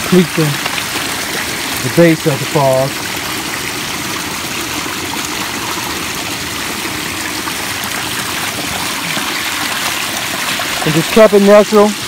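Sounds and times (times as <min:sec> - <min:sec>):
water splashing over rocks: 0:00.0 - 0:12.0.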